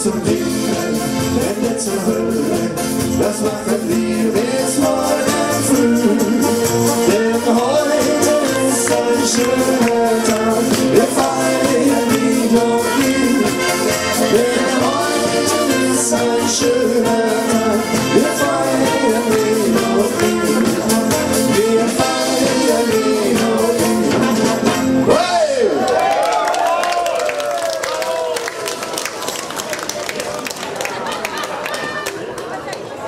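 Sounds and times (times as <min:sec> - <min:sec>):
live band playing party music: 0:00.0 - 0:25.9.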